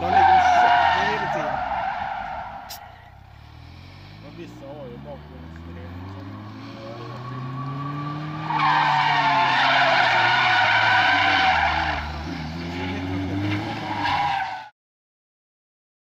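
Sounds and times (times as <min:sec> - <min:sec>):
tyres squealing: 0:00.0 - 0:04.3, 0:06.2 - 0:14.7
car engine revving: 0:00.0 - 0:14.7.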